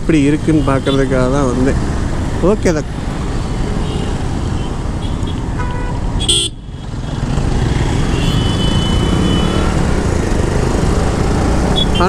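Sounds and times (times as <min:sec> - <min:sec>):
vehicle horn toots: 0:05.0 - 0:06.6, 0:08.1 - 0:09.7.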